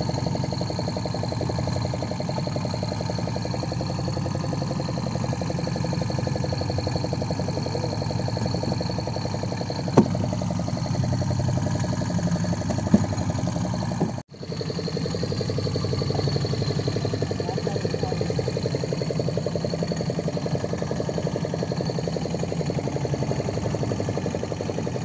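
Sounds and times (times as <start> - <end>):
boat engine idling: 0.0 - 25.0
sharp knocks: 9.8 - 10.4, 12.6 - 14.2.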